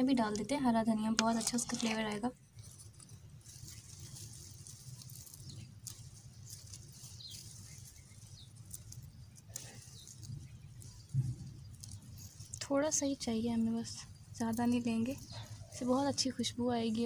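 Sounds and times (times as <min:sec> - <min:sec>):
herb stems rustling and snapping: 0:01.1 - 0:13.3.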